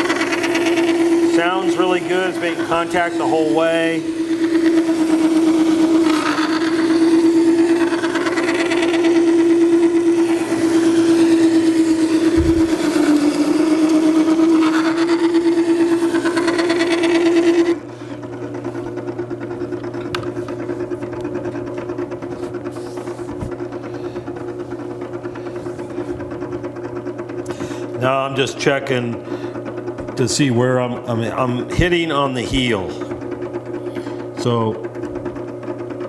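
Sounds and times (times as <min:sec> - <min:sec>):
sharpener motor hum: 0:00.0 - 0:36.0
gritty grinding of knife on stone: 0:04.3 - 0:17.8.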